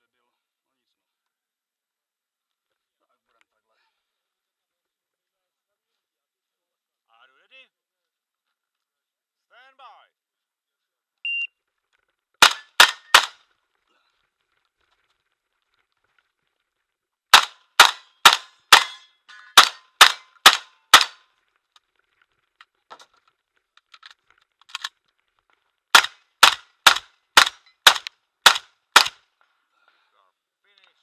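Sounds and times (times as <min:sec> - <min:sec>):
shotgun firing rapidly: 0:12.4 - 0:13.4, 0:17.3 - 0:19.0, 0:19.6 - 0:21.2, 0:26.0 - 0:29.2.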